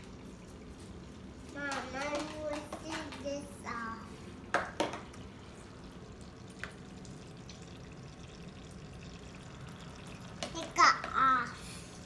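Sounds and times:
thin stream of water: 0:04.0 - 0:12.0.

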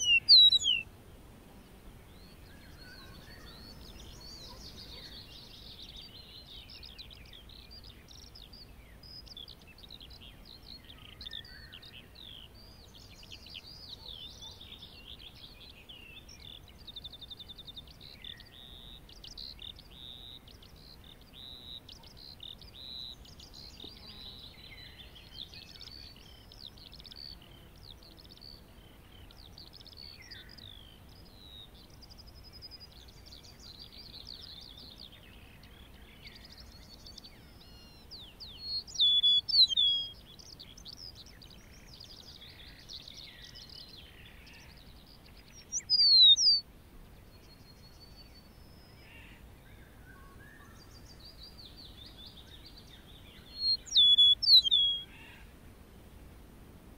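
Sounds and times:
sharp whistled bird notes: 0:00.0 - 0:00.8, 0:45.7 - 0:46.6, 0:53.6 - 0:55.0
skylark warbling song: 0:00.0 - 0:00.8, 0:36.2 - 0:42.2, 0:44.6 - 0:46.6, 0:51.2 - 0:55.0.

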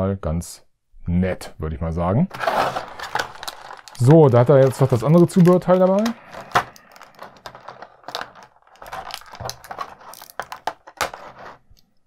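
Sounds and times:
plastic tray crinkling and clicking: 0:02.3 - 0:11.9.

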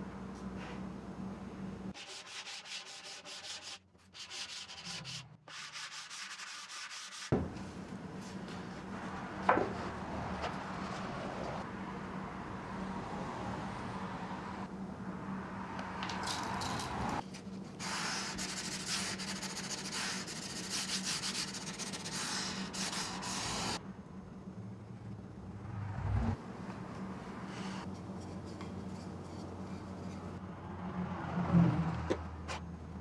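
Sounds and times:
rubbing and scraping on wood: 0:02.0 - 0:07.6, 0:27.4 - 0:30.4
short thump: 0:07.3 - 0:07.6.

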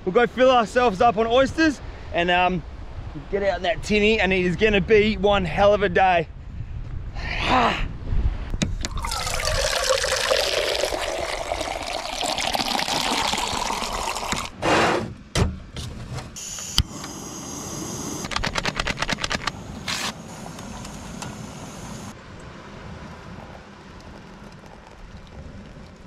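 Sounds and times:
water filling a cup: 0:08.9 - 0:14.6, 0:24.0 - 0:26.0
sharp clicks: 0:18.2 - 0:21.3.

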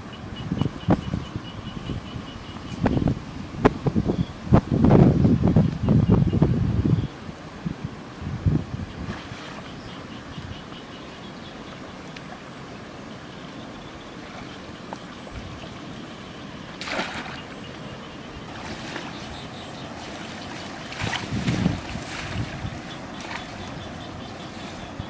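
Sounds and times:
stream water trickling: 0:08.0 - 0:25.0
hands splashing in water: 0:16.8 - 0:17.4, 0:20.0 - 0:23.7.

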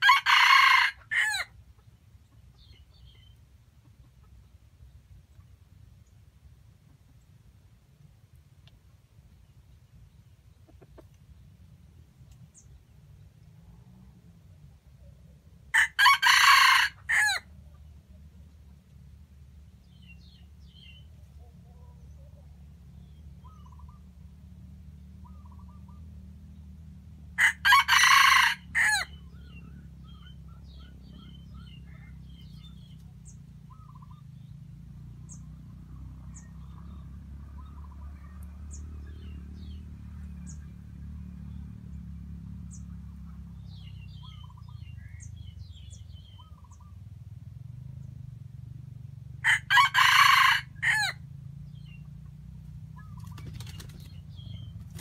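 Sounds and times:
rooster crowing: 0:00.0 - 0:01.5, 0:15.7 - 0:17.5, 0:27.4 - 0:29.3, 0:49.4 - 0:51.2
small birds chirping: 0:01.6 - 0:07.4, 0:08.4 - 0:13.6, 0:17.7 - 0:24.3, 0:25.1 - 0:26.9, 0:29.0 - 0:48.4, 0:51.6 - 0:55.0.

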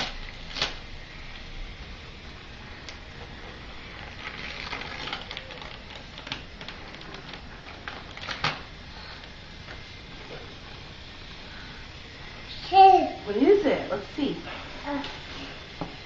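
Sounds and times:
wrapping paper crinkling and tearing: 0:00.0 - 0:01.6, 0:02.7 - 0:10.9.

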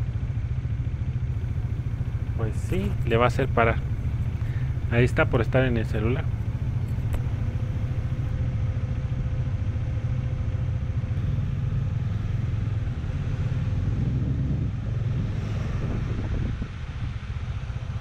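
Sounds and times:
faint steady tone: 0:01.4 - 0:08.3
motorcycle engine rumbling: 0:01.4 - 0:08.3.

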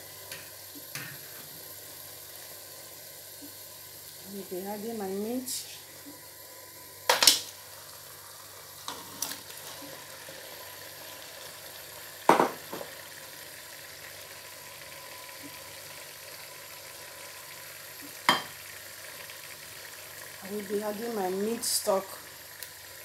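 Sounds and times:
stew frying in oil: 0:00.0 - 0:23.0
knocks against pot: 0:12.3 - 0:12.9.

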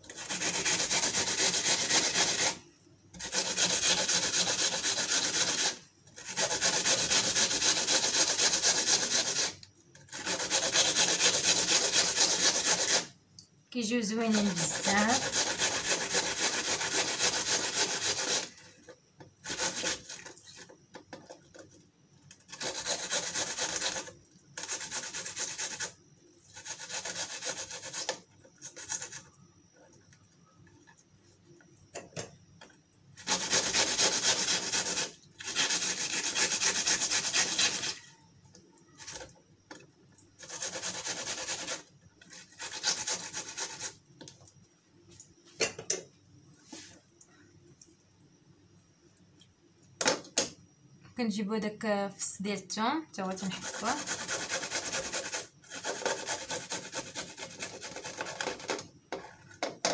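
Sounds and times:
onion rasping on metal grater: 0:00.0 - 0:02.6, 0:03.2 - 0:13.1, 0:14.2 - 0:18.6, 0:19.4 - 0:20.2, 0:22.5 - 0:29.2, 0:33.2 - 0:38.1, 0:40.4 - 0:44.0, 0:53.4 - 0:58.6.

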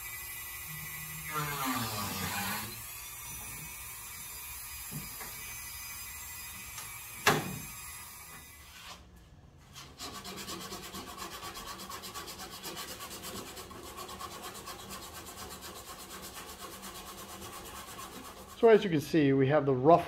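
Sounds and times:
rotary tool whining: 0:00.0 - 0:09.0
hand file rasping: 0:01.2 - 0:02.8, 0:09.7 - 0:18.7.

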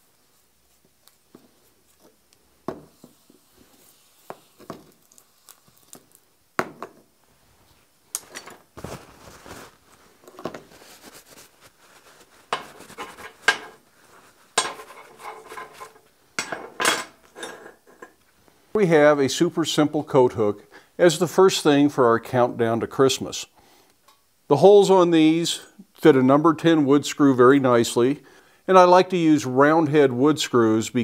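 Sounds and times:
rag rubbing and scraping: 0:08.4 - 0:16.0
steel hooks clinking on steel bench: 0:14.6 - 0:18.1.

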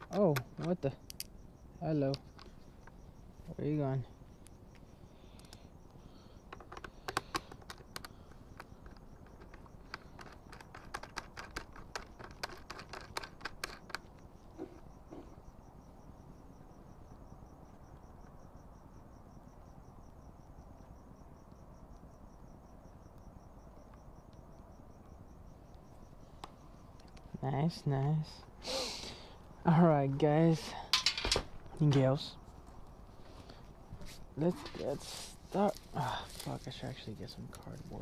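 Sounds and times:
crickets chirping: 0:00.0 - 0:38.0
light clicks and taps on helmet: 0:06.4 - 0:15.3, 0:25.7 - 0:27.3.

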